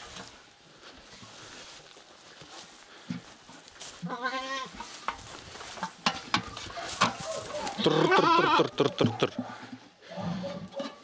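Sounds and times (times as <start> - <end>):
goat bleating: 4.0 - 4.8, 7.7 - 9.2.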